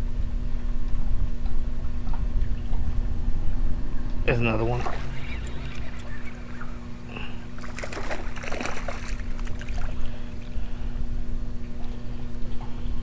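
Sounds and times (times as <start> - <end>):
low hum: 0.0 - 13.0
fish splashing in water: 4.6 - 10.8.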